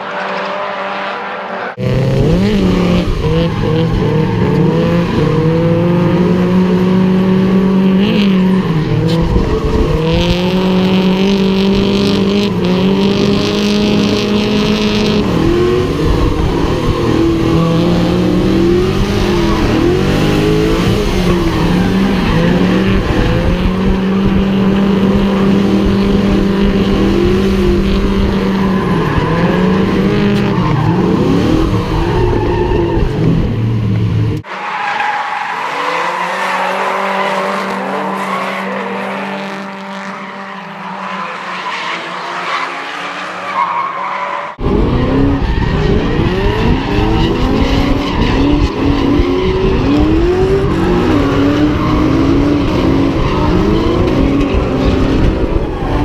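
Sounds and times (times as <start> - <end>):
car engine at high revs: 0.0 - 38.2, 44.5 - 56.0.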